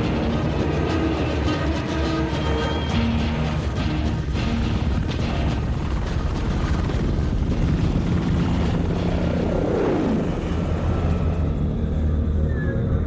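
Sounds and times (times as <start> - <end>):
helicopter rotor and turbine rumble: 0.0 - 13.0.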